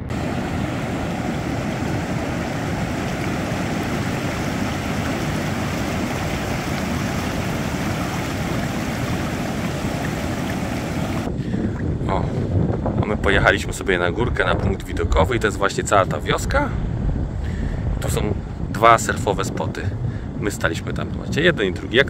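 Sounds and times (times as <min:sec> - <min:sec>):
ocean surf breaking: 0:00.0 - 0:11.4
wind buffeting microphone: 0:00.0 - 0:22.0.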